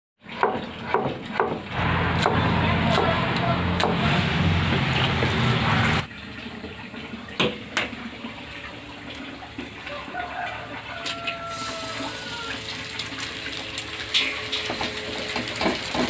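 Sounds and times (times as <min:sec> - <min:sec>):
loud steady rushing: 0:01.7 - 0:06.1.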